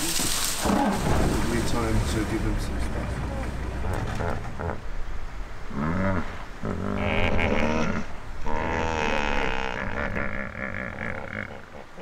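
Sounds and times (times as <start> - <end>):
elephants calling: 0.0 - 1.4, 3.1 - 5.0.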